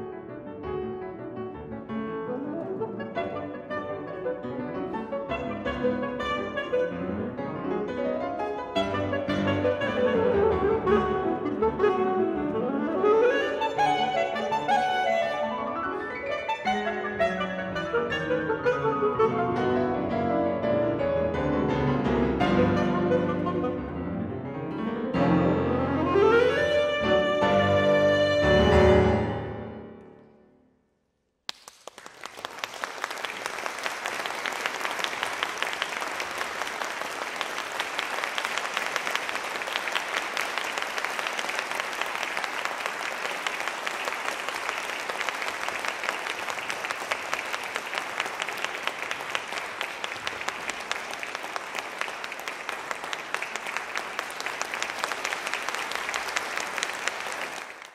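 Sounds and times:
saxophone and piano chord: 22.0s - 29.8s
audience applause: 31.5s - 57.9s.

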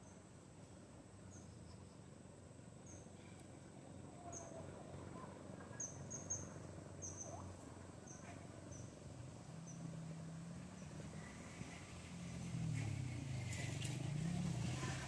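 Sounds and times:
insect chirps: 5.7s - 7.4s.

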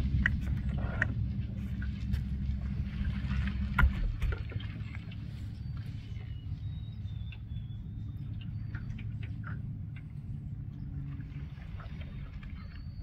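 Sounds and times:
boat motor humming: 0.0s - 13.0s.

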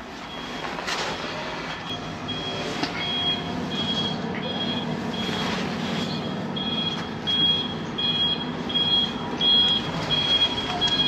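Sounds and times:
high electronic beeps: 1.9s - 11.0s.

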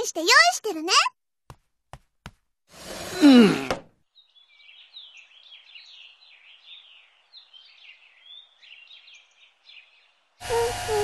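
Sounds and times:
small birds chirping: 4.0s - 11.0s.

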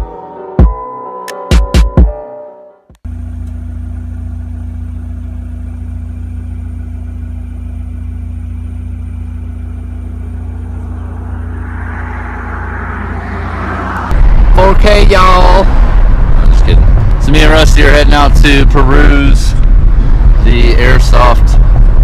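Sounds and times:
car road and engine rumble: 3.0s - 22.0s
wind and tyre hiss: 10.0s - 22.0s.

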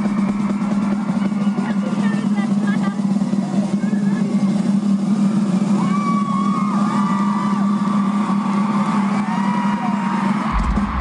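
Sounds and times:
crowd screaming: 0.0s - 11.0s
low drone from sound system: 3.1s - 11.0s
deep bass: 10.4s - 11.0s.

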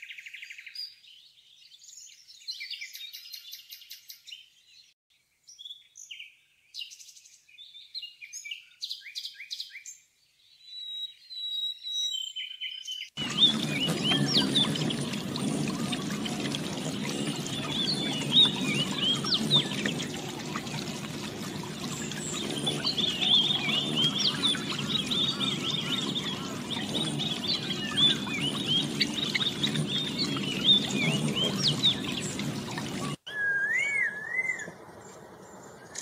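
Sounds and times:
high bird chirps: 10.8s - 36.0s
water trickling: 13.2s - 33.3s.

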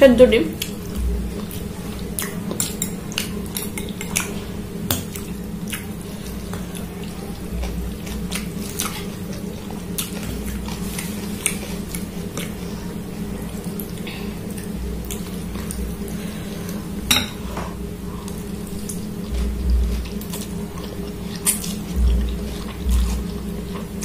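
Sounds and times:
steady low hum: 0.0s - 24.0s
cutlery clinking on glass bowl: 17.1s - 17.4s.

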